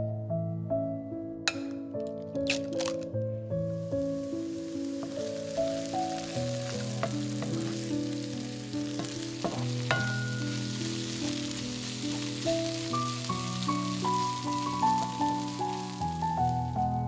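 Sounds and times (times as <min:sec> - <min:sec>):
soft background music: 0:00.0 - 0:17.0
onions sizzling in a pan: 0:03.6 - 0:17.0
wooden spatula scraping a pan: 0:04.9 - 0:15.2.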